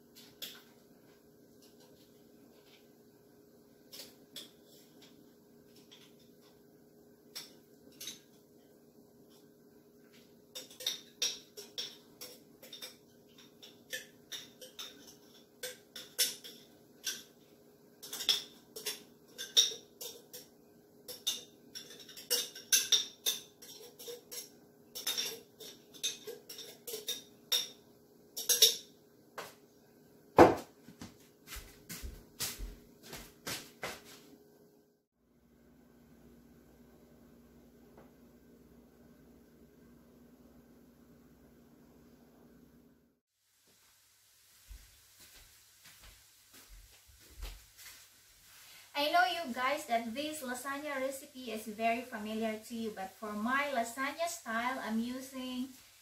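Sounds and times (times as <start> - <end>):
cans and dishes clinking: 10.5 - 17.4, 18.0 - 27.8, 28.4 - 28.9.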